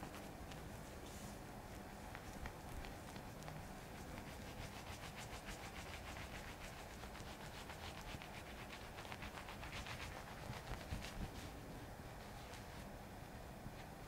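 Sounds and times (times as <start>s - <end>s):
shaving brush swishing through lather: 2.3s - 11.3s.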